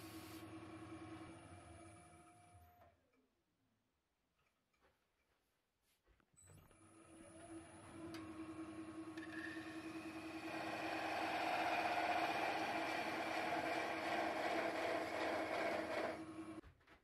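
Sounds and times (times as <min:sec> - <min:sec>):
wood lathe motor hum: 0:07.1 - 0:16.6
tool cutting spinning wood: 0:08.9 - 0:16.6.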